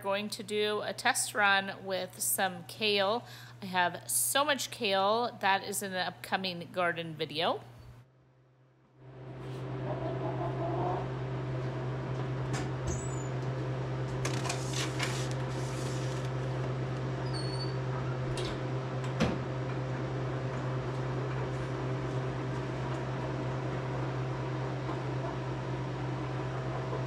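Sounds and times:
freeze dryer humming: 9.0s - 27.0s.

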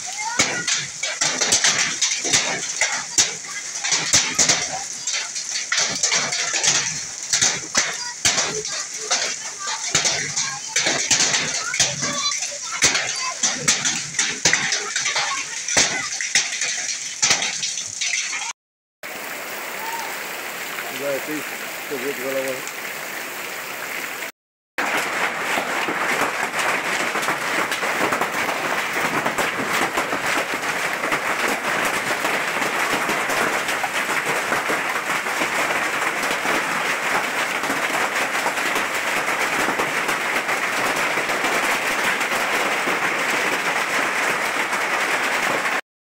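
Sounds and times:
hailstones striking hard surfaces: 0.0s - 18.5s, 20.8s - 22.6s, 24.8s - 45.8s
heavy rain: 0.0s - 45.8s.

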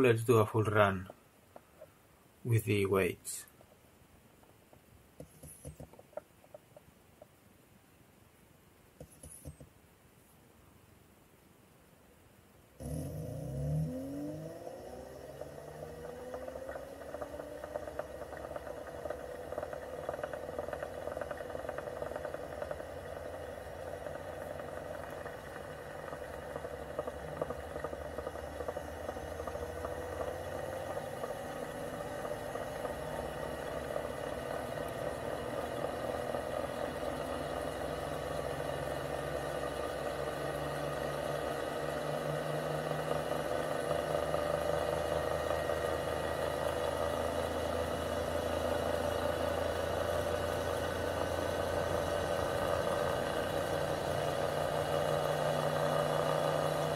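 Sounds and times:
electric motor whirring: 12.8s - 56.9s.

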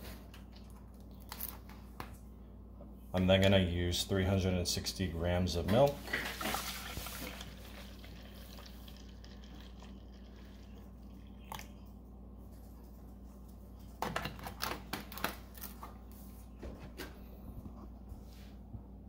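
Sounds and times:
milk pouring into bottle: 6.1s - 11.9s.

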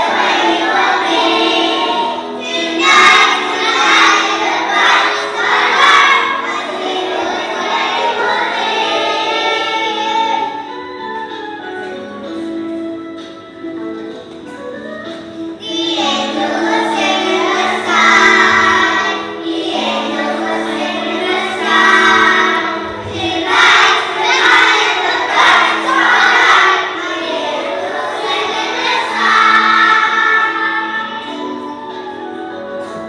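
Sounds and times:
children's choir singing: 0.0s - 12.5s, 13.2s - 33.0s
instrumental accompaniment: 0.0s - 33.0s.

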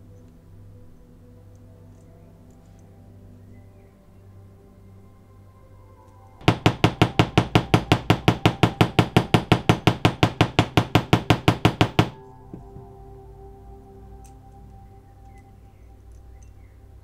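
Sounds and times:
small hammer tapping on metal: 6.4s - 12.8s.

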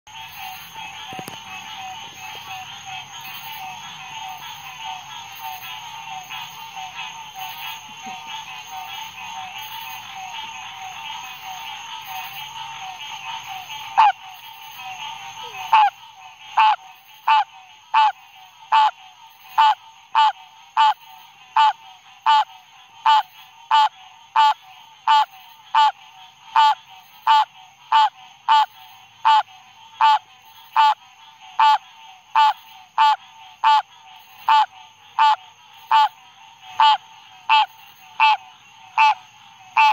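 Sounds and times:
night insect chorus: 0.1s - 39.9s
treefrog calling: 0.1s - 39.9s.

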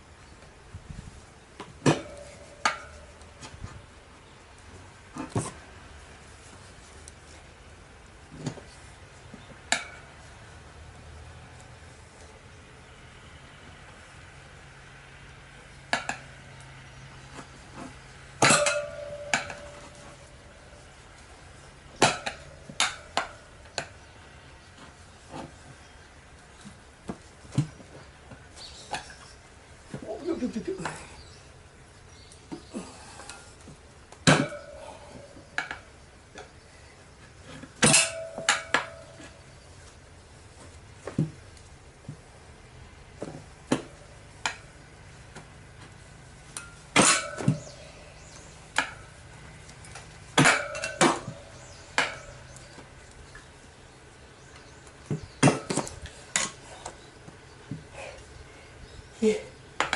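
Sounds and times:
tyre levers clinking on wheel rim: 18.4s - 20.8s, 46.5s - 49.1s.

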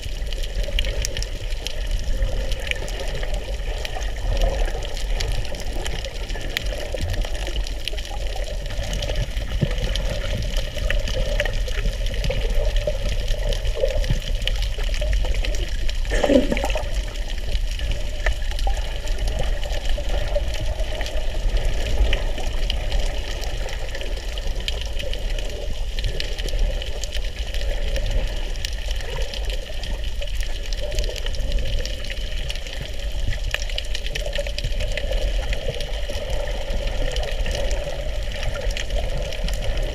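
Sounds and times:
muffled underwater water rush: 0.0s - 39.9s
brief louder underwater sound: 16.1s - 17.2s.

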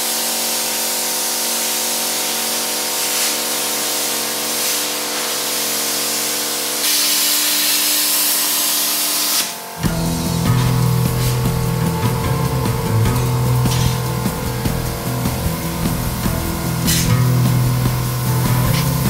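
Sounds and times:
steel cutting hiss: 2.2s - 19.0s
low machine hum: 9.8s - 19.0s.

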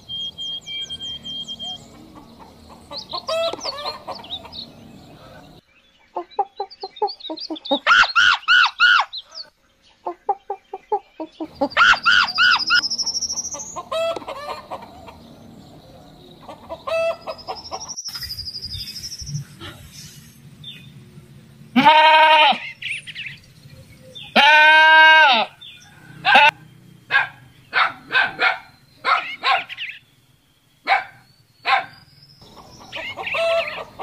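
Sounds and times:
chickens clucking: 0.0s - 18.0s, 32.4s - 34.0s
rooster crowing: 0.8s - 5.5s, 13.8s - 15.7s, 24.4s - 26.6s, 32.4s - 34.0s.

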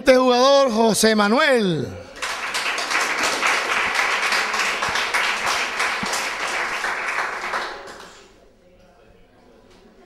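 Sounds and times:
audience applauding: 2.1s - 8.3s.

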